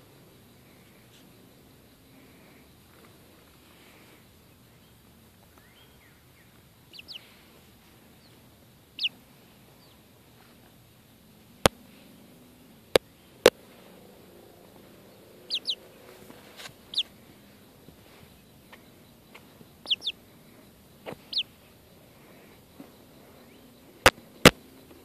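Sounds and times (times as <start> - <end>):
chicks peeping: 5.6 - 10.0, 14.6 - 25.0.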